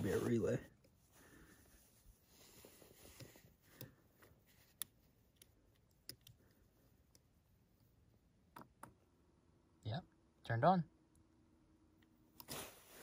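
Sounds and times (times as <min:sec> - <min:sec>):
faint plastic connector clicks: 0:03.2 - 0:07.2.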